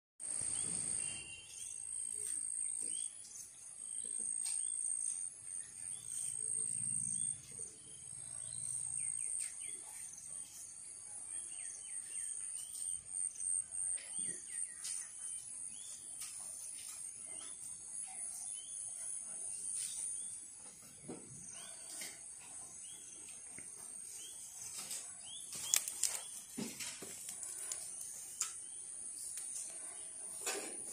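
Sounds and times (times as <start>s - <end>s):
bird chirps: 0.2s - 17.6s
insects chirring: 24.8s - 30.6s.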